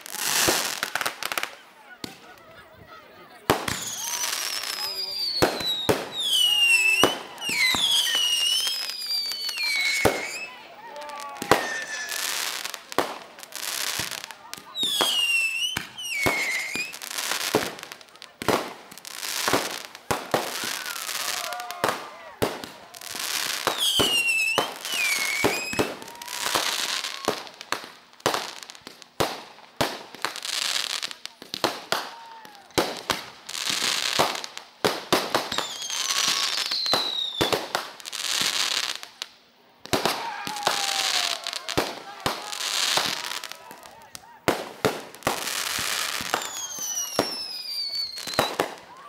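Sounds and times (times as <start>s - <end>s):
firework crackle: 0.0s - 2.7s, 3.3s - 49.0s
firework bangs: 3.4s - 39.1s, 39.8s - 49.0s
firework whistles: 3.5s - 10.6s, 11.4s - 12.7s, 14.0s - 17.5s, 19.6s - 21.6s, 23.2s - 27.4s, 35.3s - 38.9s, 44.5s - 49.0s.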